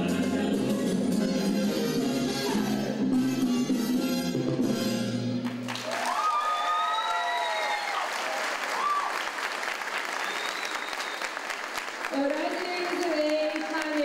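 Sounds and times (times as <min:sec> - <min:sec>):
salsa music: 0:00.0 - 0:05.7
audience applause and cheering: 0:05.4 - 0:14.0.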